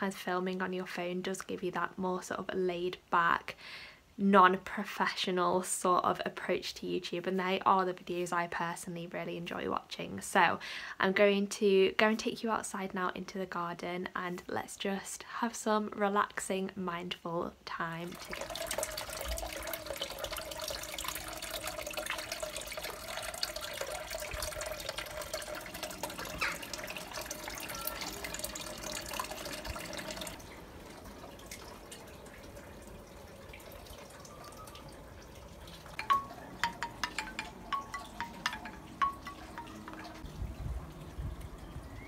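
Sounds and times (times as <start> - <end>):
fountain water trickling: 17.8 - 42.0
bamboo wind chime clacking: 35.9 - 40.2.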